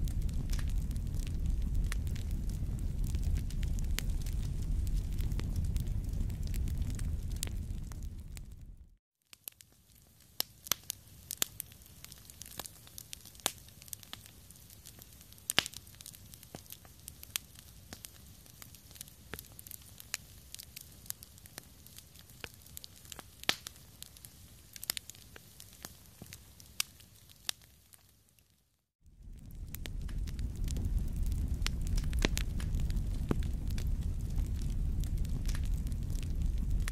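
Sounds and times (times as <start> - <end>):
hiss of burning: 0.0 - 8.7, 29.2 - 36.9
campfire crackling and popping: 0.0 - 28.2, 29.1 - 36.9.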